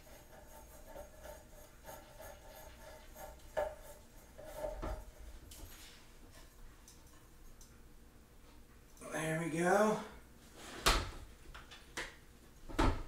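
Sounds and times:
metal threads scraping wood: 0:00.0 - 0:06.0.

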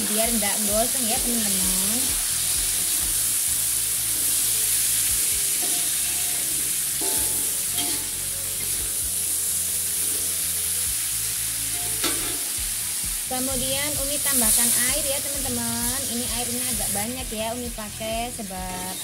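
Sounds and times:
beans sizzling in oil: 0:00.0 - 0:19.0
metal spatula scraping wok: 0:02.2 - 0:08.8, 0:11.6 - 0:12.6.

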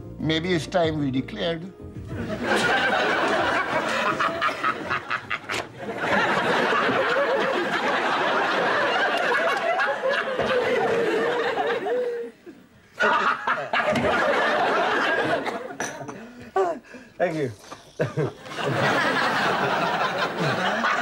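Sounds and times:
studio audience laughing: 0:02.2 - 0:15.8, 0:18.0 - 0:21.0.

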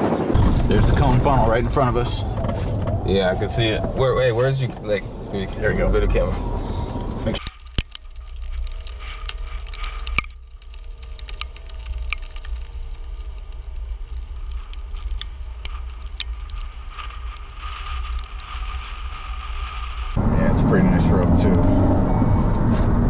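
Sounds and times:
strong wind buffeting vehicle: 0:00.0 - 0:14.4, 0:15.4 - 0:23.0
debris ticking against vehicle: 0:06.4 - 0:18.9.

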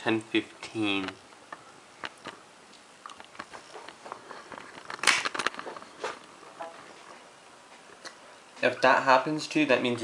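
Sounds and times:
camera handling clicks and rustles: 0:03.2 - 0:06.3.

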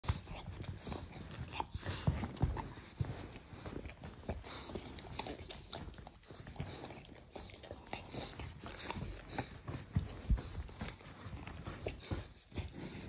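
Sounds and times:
puppy snuffling: 0:00.1 - 0:13.0.

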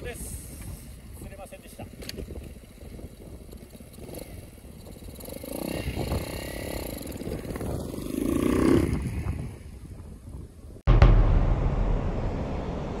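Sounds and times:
motorcycle engine revving: 0:03.8 - 0:09.0.

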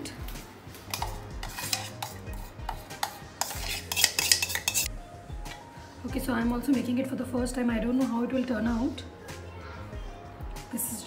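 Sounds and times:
metal spoon scraping a steel bowl: 0:00.9 - 0:04.9.

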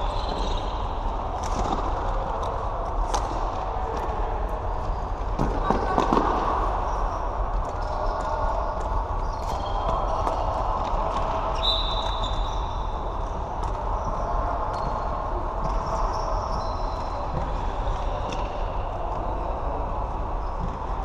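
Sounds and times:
steady background noise: 0:00.0 - 0:21.0
clacks of sticks and ball: 0:01.4 - 0:04.1, 0:13.6 - 0:19.3.

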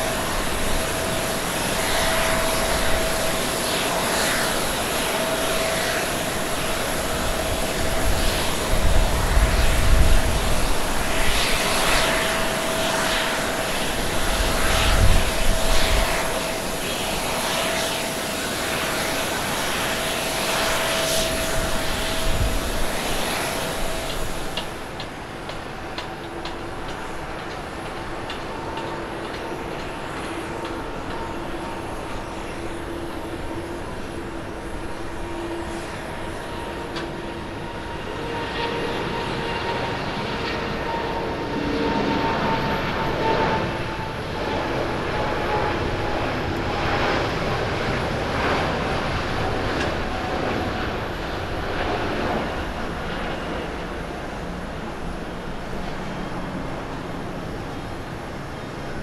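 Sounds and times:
jet airliner taking off: 0:00.0 - 0:59.0
jet engine whine on runway: 0:00.0 - 0:59.0.

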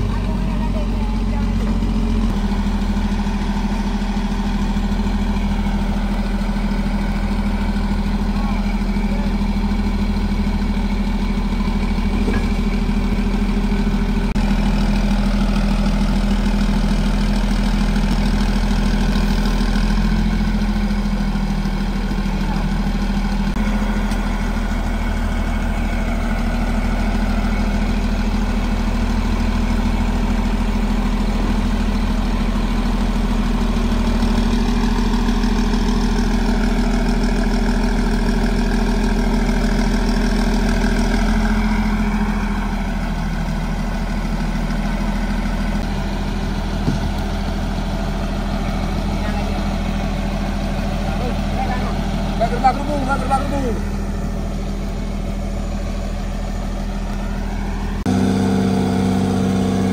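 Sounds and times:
diesel bulldozer idling: 0:00.0 - 0:59.9.

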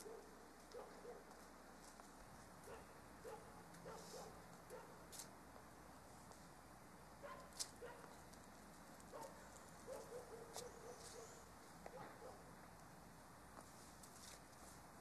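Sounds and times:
faint dog barks: 0:00.0 - 0:01.4, 0:02.6 - 0:05.1, 0:07.2 - 0:08.2, 0:09.1 - 0:12.5.

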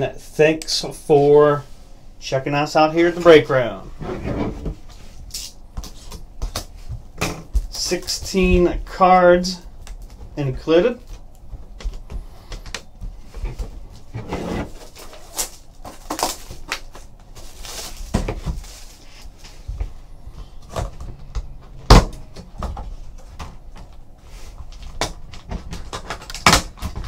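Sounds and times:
plastic wrap crinkling: 0:14.8 - 0:19.4.

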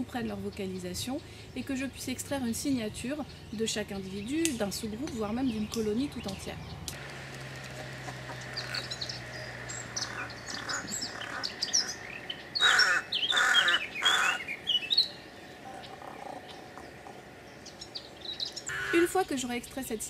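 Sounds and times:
rook cawing: 0:07.0 - 0:15.0, 0:18.6 - 0:19.1
bird chirps: 0:07.7 - 0:19.0.

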